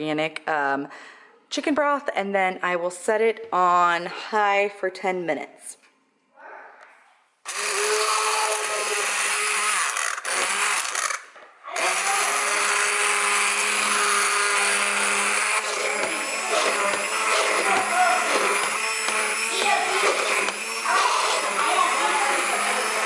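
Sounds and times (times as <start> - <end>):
immersion blender running: 7.5 - 23.0.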